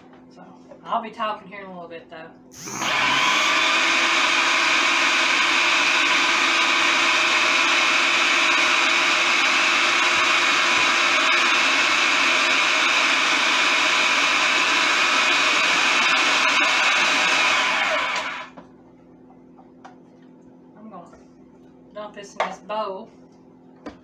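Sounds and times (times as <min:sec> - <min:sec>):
food processor whining: 0:02.6 - 0:18.6.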